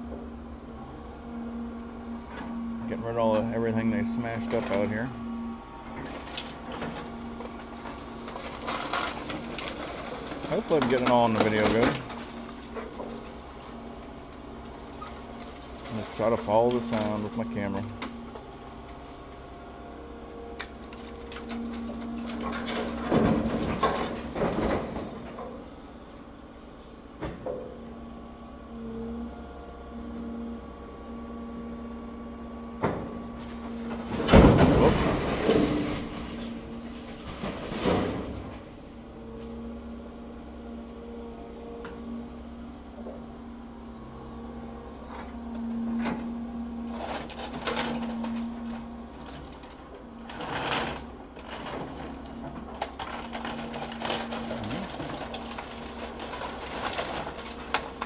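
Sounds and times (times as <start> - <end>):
excavator engine humming: 0.0 - 58.0
hydraulic whine: 0.0 - 58.0
rubble crashing into truck: 21.0 - 25.6, 32.9 - 38.8, 50.3 - 58.0.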